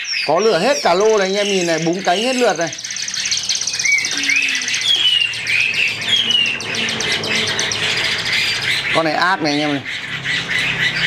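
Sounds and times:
birds slurred whistles: 0.0s - 11.0s
bird rapid high trill: 0.5s - 9.2s.

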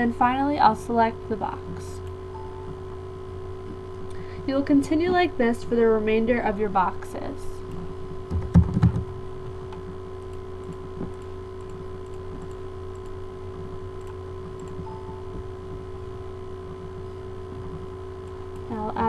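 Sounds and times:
steady low hum: 0.0s - 19.0s
computer mouse clicks: 9.7s - 13.2s, 14.0s - 14.8s.

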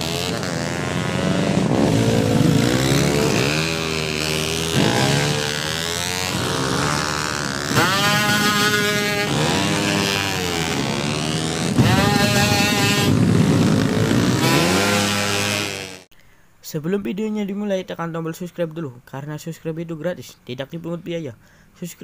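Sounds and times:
motorcycles revving and accelerating: 0.0s - 16.1s.

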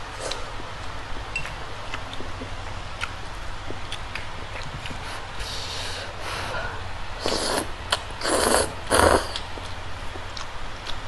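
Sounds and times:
person eating noodles noisily: 1.9s - 9.7s.

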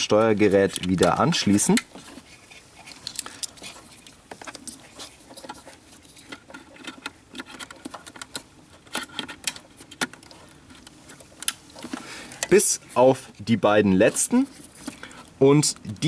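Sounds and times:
plastic plugs and wires clicking: 0.0s - 1.9s.

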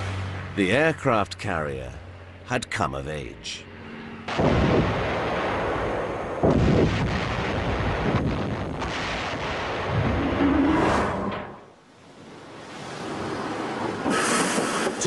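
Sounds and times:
loud explosions: 4.3s - 11.6s
rumbling: 4.3s - 11.8s.

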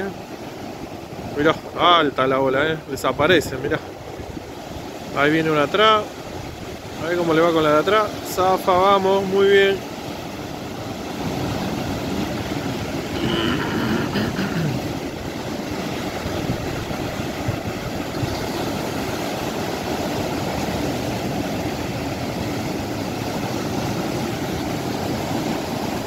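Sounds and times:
surf breaking on shore: 0.0s - 26.0s.

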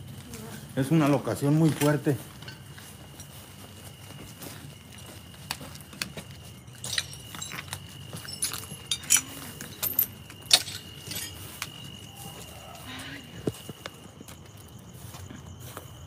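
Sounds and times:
keys jangling: 5.5s - 11.8s.

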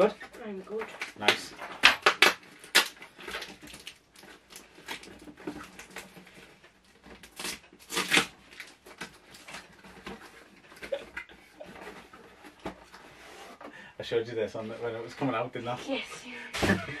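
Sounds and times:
packing tape peeling: 1.0s - 6.1s, 7.1s - 10.2s
cardboard ripping: 7.1s - 11.1s.

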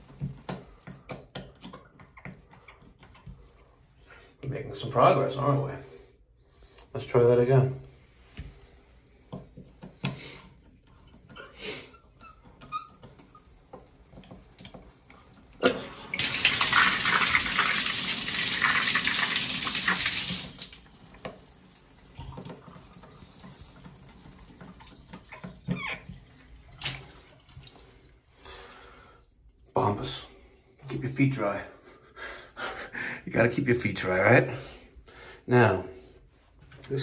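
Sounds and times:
water spraying from shower valve: 11.4s - 25.8s.

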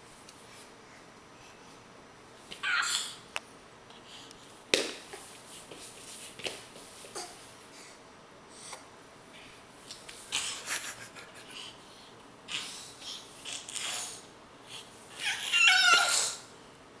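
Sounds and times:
baby high-pitched squeal: 2.6s - 3.2s, 15.1s - 16.4s.

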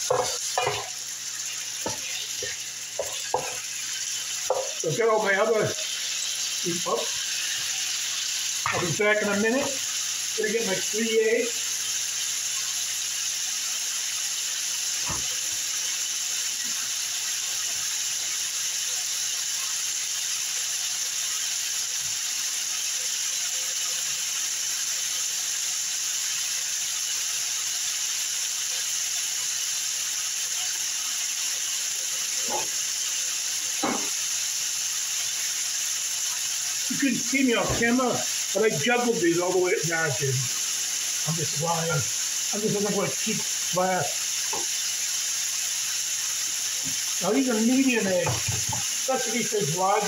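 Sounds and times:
chicken sizzling in a skillet: 0.0s - 50.0s.

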